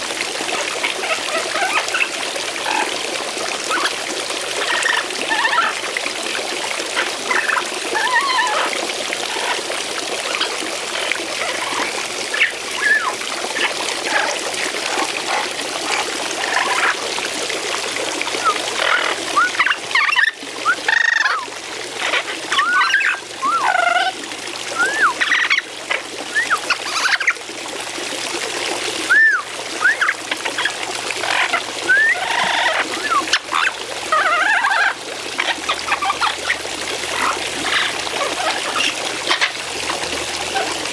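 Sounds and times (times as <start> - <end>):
fountain water splashing: 0.0 - 40.9
parrot whistles and squawks: 3.7 - 3.9, 4.6 - 5.7, 7.3 - 8.7, 11.4 - 14.3, 18.4 - 24.2, 24.8 - 27.3, 29.1 - 36.6.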